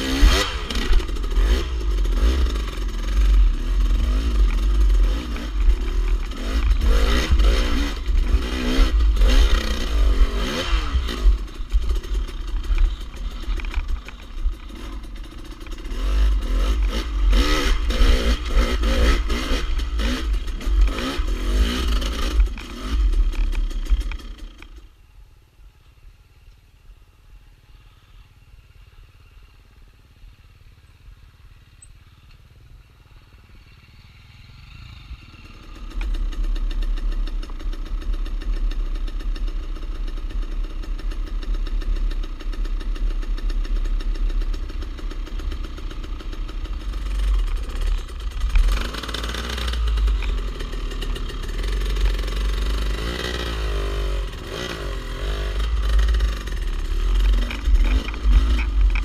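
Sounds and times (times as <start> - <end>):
dirt bike engine revving: 0.0 - 24.7, 42.6 - 59.0
distant motorcycle engine: 0.0 - 59.0.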